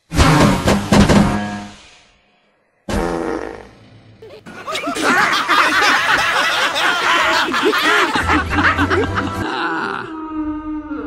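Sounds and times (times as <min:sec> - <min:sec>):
cartoon characters laughing: 0:04.2 - 0:10.1.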